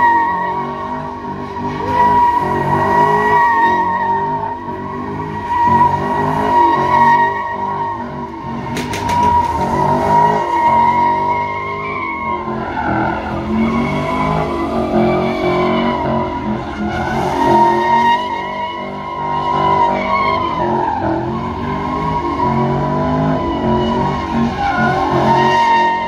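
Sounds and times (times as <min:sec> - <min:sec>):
car engine revving: 0:00.0 - 0:26.0
tires squealing: 0:00.0 - 0:26.0.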